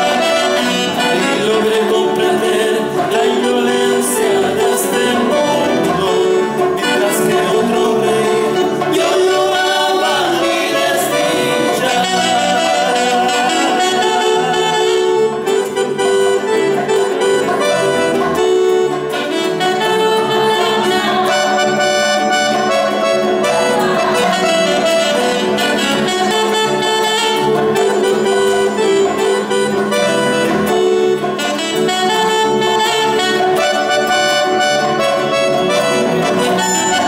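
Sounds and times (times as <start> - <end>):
acoustic guitars: 0.0 - 37.0
bass guitar: 0.0 - 37.0
melody of long held notes: 0.0 - 37.0.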